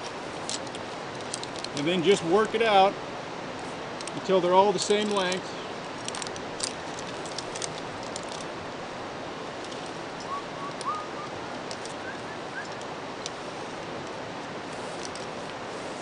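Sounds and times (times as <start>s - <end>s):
steady background hiss: 0.0s - 16.0s
rope and carabiners clicking: 0.4s - 1.9s, 6.0s - 8.5s
short rising chirps: 10.2s - 11.3s.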